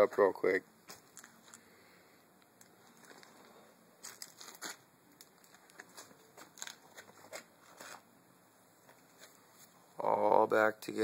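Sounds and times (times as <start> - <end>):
faint crackling and rustling: 0.8 - 8.1, 8.8 - 10.0.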